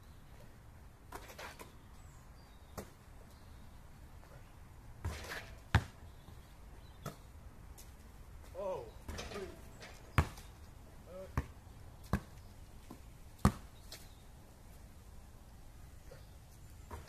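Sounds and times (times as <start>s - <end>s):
basketball bouncing on asphalt: 2.7s - 3.1s, 5.0s - 8.0s, 9.1s - 14.0s.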